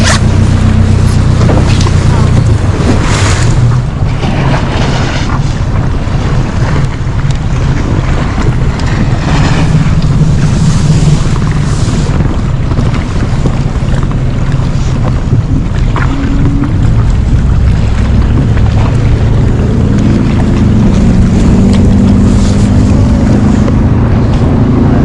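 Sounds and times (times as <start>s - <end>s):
outboard motor running: 0.0s - 25.0s
rushing water: 0.0s - 25.0s
wind noise on microphone: 0.0s - 25.0s.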